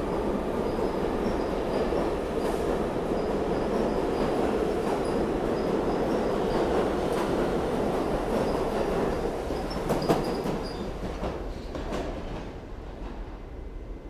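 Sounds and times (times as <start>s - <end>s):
subway train wheels rumbling: 0.0s - 14.0s
clacks over rail joints: 8.1s - 13.2s.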